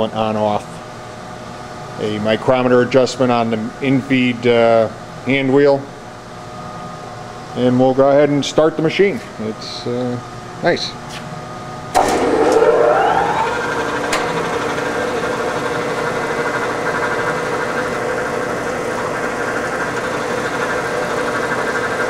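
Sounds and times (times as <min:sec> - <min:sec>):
grinder motor whine and hum: 0:12.0 - 0:22.0.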